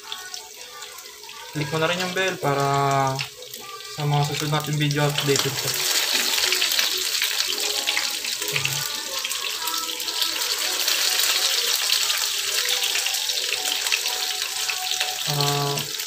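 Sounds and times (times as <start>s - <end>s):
fritters sizzling in oil: 0.0s - 16.0s.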